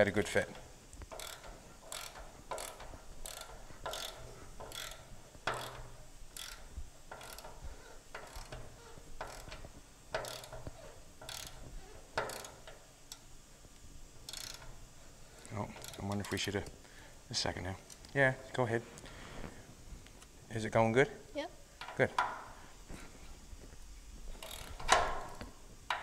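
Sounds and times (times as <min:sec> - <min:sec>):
ratchet wrench clicking: 0:00.0 - 0:13.3, 0:14.2 - 0:16.8, 0:24.4 - 0:26.0.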